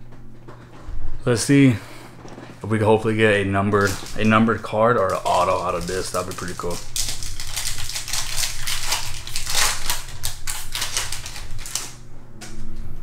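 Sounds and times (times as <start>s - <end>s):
foil wrapper tearing and crinkling: 3.7s - 12.0s.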